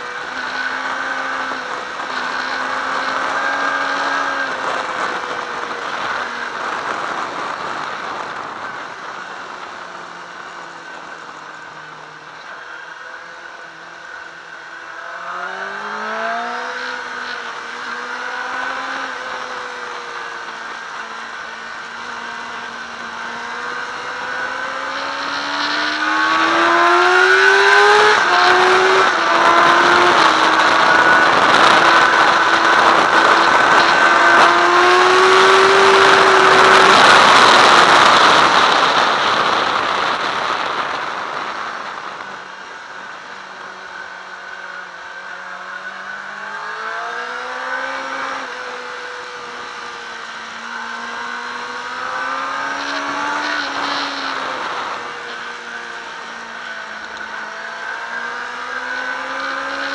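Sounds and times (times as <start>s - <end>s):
motorcycle engine accelerating: 0.0s - 59.9s
wind rushing over microphone: 0.2s - 11.2s, 15.9s - 43.8s.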